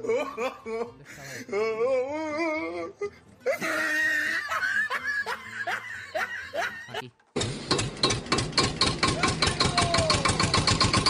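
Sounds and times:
people laughing: 0.0 - 1.1, 3.5 - 7.1.

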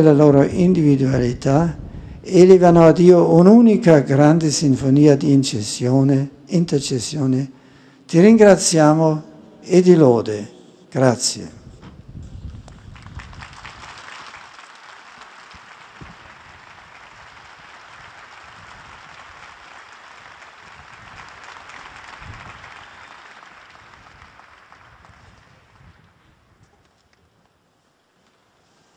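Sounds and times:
large crowd applauding: 12.8 - 26.2.

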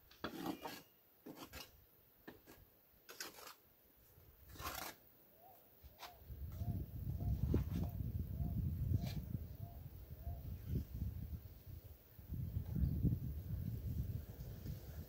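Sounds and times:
trowel scraping and tapping bricks: 0.0 - 3.6.

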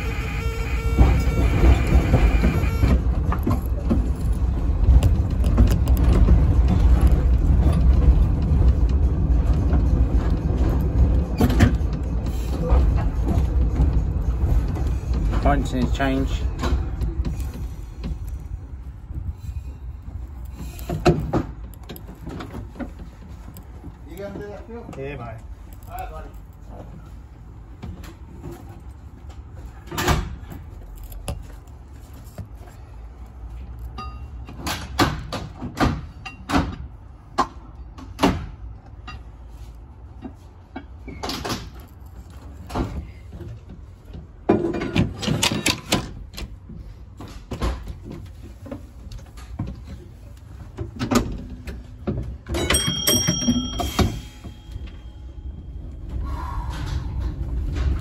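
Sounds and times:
low steady rumble: 1.0 - 34.3, 48.0 - 58.0.

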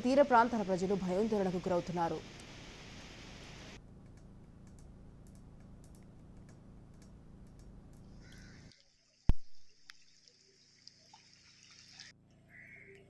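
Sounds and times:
faint hiss: 0.0 - 3.8
low outdoor rumble: 0.0 - 8.7.

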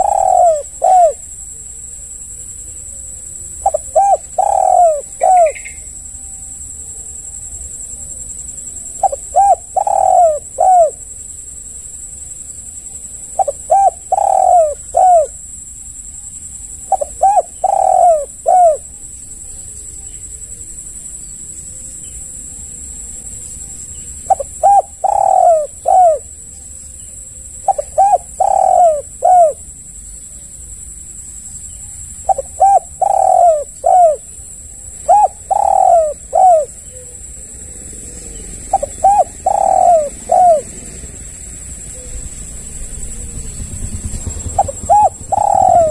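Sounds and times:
dove cooing: 0.0 - 1.5, 2.9 - 5.9, 8.9 - 11.1, 13.0 - 15.5, 16.8 - 20.6, 24.0 - 26.4, 27.4 - 29.7, 32.2 - 41.2, 41.8 - 45.9
steady high-pitched hiss: 0.0 - 45.9.

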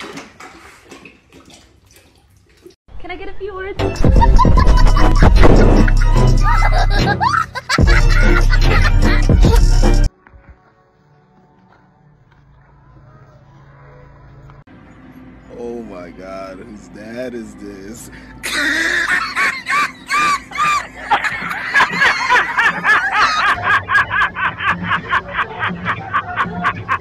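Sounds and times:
loud background music: 3.8 - 10.1
high-pitched rhythmic laughter: 4.0 - 10.1, 18.4 - 27.0.

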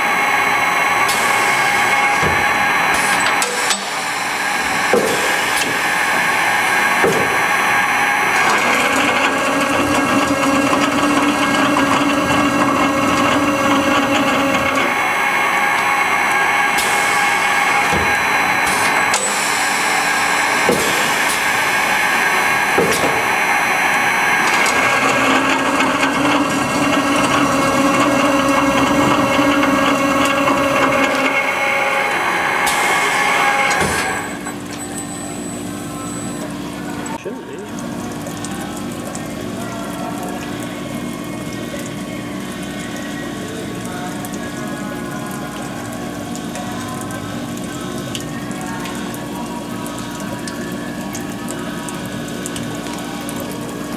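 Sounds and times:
cold saw humming: 0.0 - 37.3.

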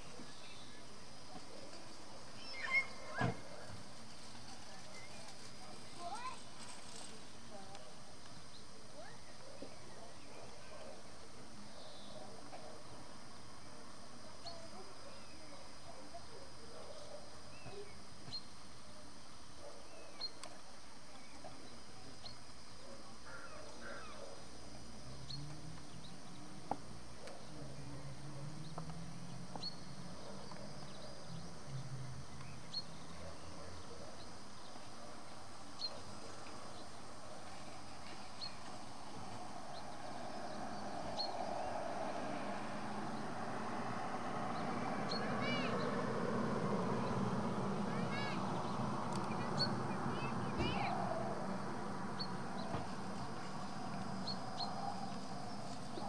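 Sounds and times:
small birds chirping: 0.0 - 13.2, 14.2 - 56.0
steady background hiss: 0.0 - 56.0.

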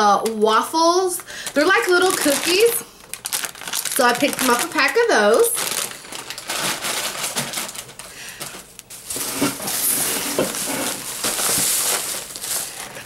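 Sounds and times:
plastic bag rustling: 1.1 - 13.0.

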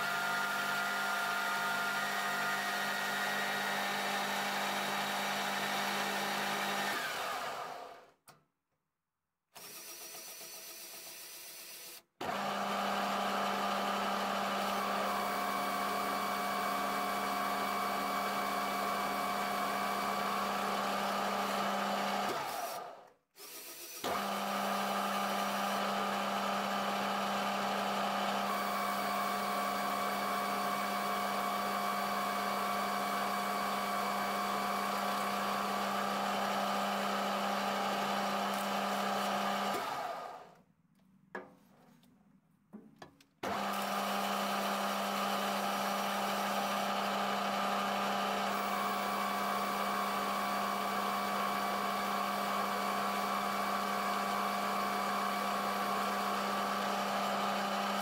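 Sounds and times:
metal lathe humming and whining: 12.2 - 22.8, 24.1 - 40.4, 43.5 - 58.0.

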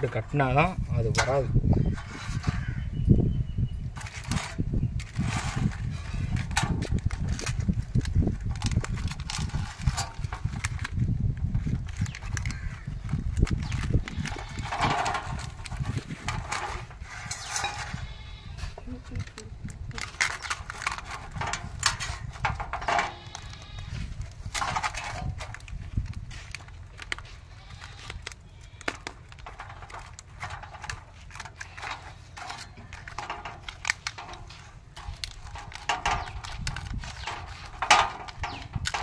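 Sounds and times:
foil crinkling and rustling: 3.9 - 39.0
animal bleating: 17.7 - 18.7, 23.1 - 24.1.

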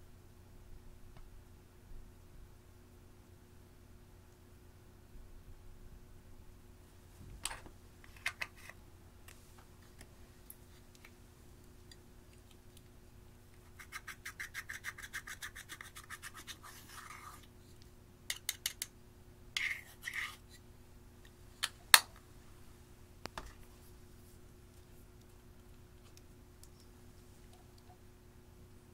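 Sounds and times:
metal tool scraping eyeshadow: 19.6 - 20.6.

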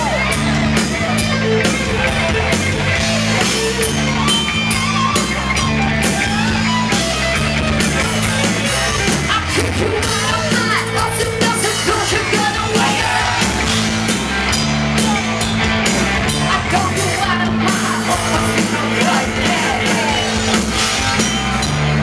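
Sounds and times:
bass guitar: 0.0 - 22.0
drums: 0.0 - 22.0
electric guitars: 0.0 - 22.0
person singing: 16.4 - 20.4.

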